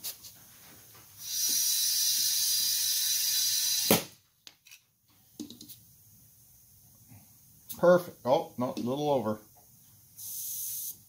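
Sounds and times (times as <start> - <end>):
compressed air hissing into tire: 1.2 - 4.1, 10.2 - 11.0.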